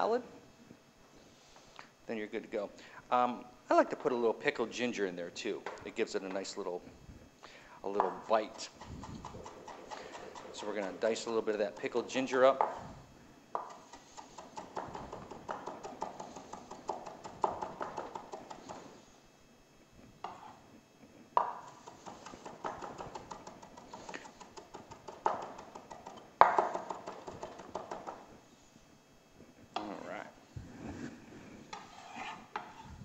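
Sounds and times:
knife chopping on wooden board: 8.0 - 12.0, 13.6 - 18.9, 21.4 - 28.3.

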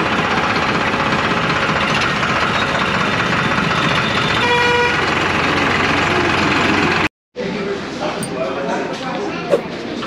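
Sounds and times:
road and vehicle noise: 0.0 - 7.1, 7.8 - 10.0
vehicle horn toot: 4.4 - 5.0.

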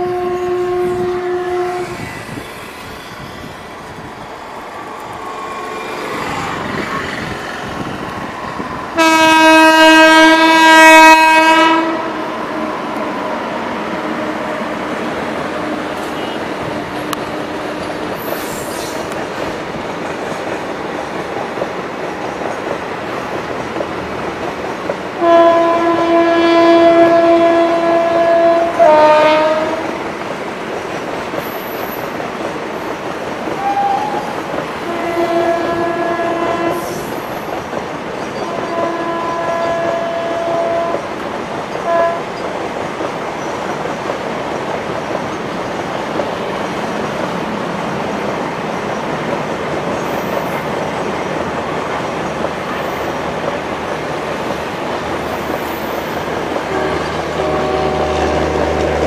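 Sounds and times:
locomotive horn blasts: 0.0 - 2.0, 9.0 - 12.2, 16.0 - 16.7, 25.2 - 30.0, 33.6 - 37.1, 38.5 - 41.0, 41.8 - 42.3, 56.7 - 59.0
train wheels rumbling on rails: 0.0 - 59.0.

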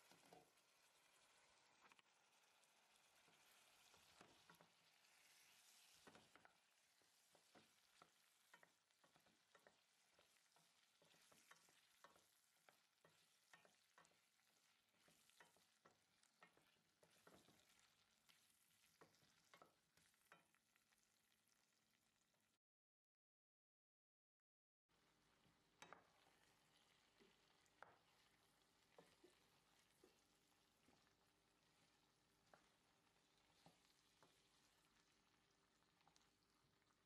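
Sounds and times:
vegetables sizzling in oil: 0.0 - 21.9, 24.9 - 37.0
wooden spoon scraping a pot: 3.2 - 19.8.

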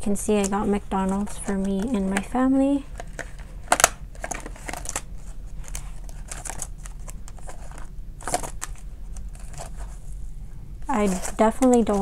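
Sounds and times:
plastic pouches crinkling: 0.4 - 10.0, 10.8 - 12.0
paper bills rustling: 2.9 - 10.1, 10.9 - 12.0.

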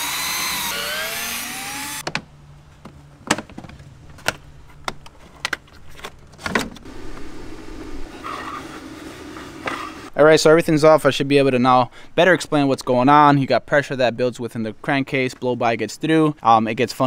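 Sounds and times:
cordless drill spinning: 0.0 - 2.0.

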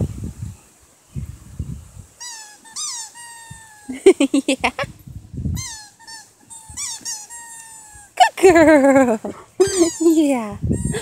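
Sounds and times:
squeaky toy squeaking: 2.2 - 4.0, 5.6 - 8.6, 9.6 - 11.0
dog chewing toy: 5.6 - 8.0.

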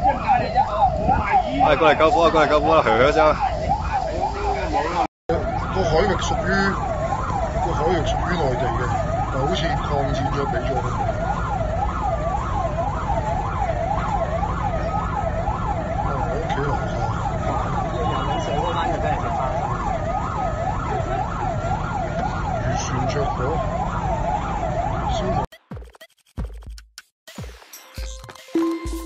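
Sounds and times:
wailing siren: 0.0 - 25.5
yelping siren: 0.0 - 25.5.

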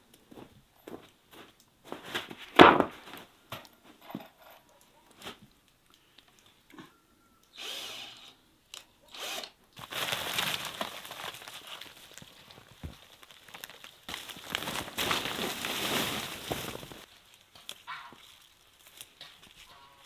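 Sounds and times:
drill driving screws into wood: 7.6 - 8.4, 9.1 - 9.6.

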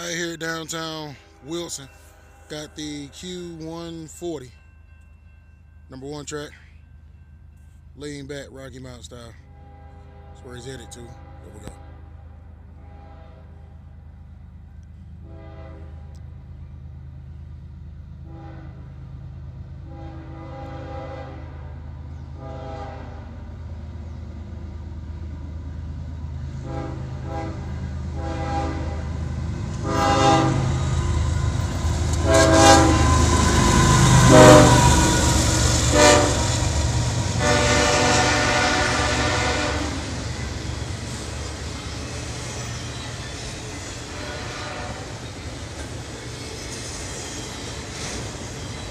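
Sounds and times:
diesel locomotive engines rumbling: 0.0 - 48.9
train air horn toots and blasts: 9.4 - 13.8, 15.2 - 16.3, 18.2 - 19.0, 19.8 - 23.4, 26.5 - 29.2, 29.8 - 40.2, 44.0 - 45.3.

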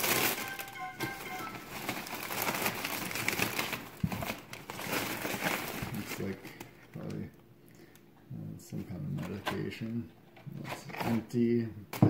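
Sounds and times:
newspaper and plastic rustling: 0.0 - 8.0.

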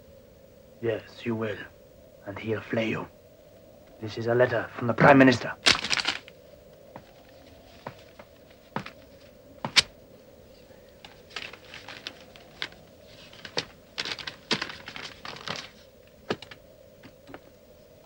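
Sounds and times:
stiff paper crackling: 5.6 - 6.3, 11.0 - 16.6.

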